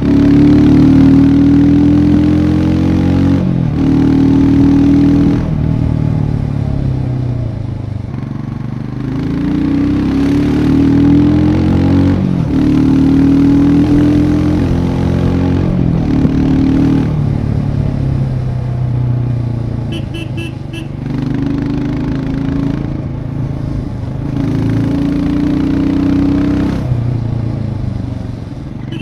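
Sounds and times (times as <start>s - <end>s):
motorcycle engine shifting gears: 8.0s - 18.4s.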